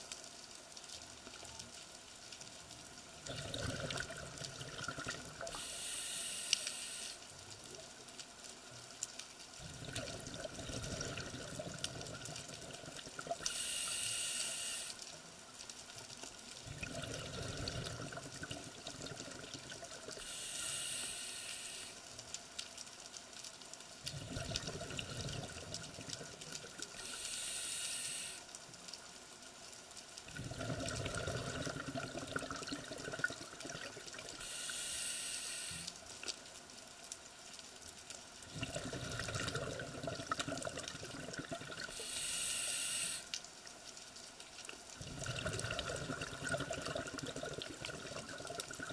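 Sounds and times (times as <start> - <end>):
exhaled bubbles rumbling: 3.2 - 5.5, 9.6 - 13.5, 16.6 - 20.2, 24.0 - 27.0, 30.3 - 34.4, 38.4 - 42.0, 45.0 - 48.9
regulator inhalation hiss: 5.5 - 7.3, 13.5 - 15.0, 20.2 - 22.0, 27.0 - 28.5, 34.4 - 36.0, 41.9 - 43.3.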